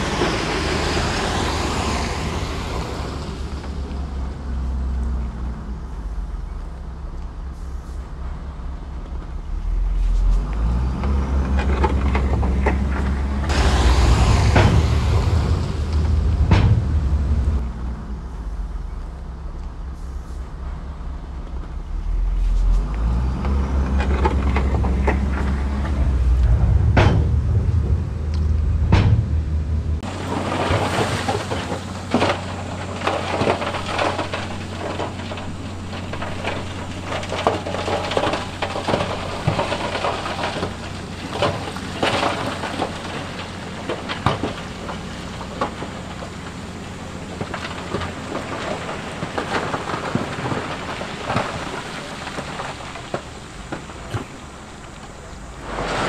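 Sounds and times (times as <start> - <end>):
heavy machinery rumbling: 0.0 - 56.0
crackling and clattering: 8.2 - 19.9, 20.6 - 56.0
sharp knocks: 13.5 - 17.6, 24.1 - 30.1.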